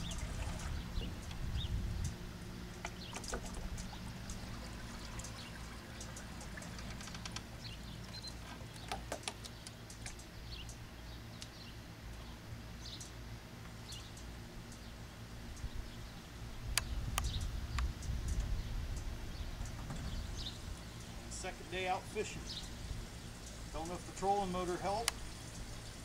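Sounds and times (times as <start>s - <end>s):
wind on microphone: 0.0s - 2.4s, 16.6s - 20.7s
water splashing and trickling: 0.0s - 10.6s, 19.6s - 26.0s.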